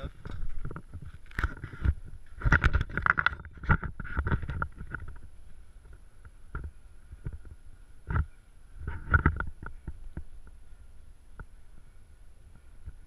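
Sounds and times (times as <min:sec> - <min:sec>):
footsteps in loose sand: 0:00.0 - 0:02.6
camera handling rustles and knocks: 0:00.0 - 0:10.3.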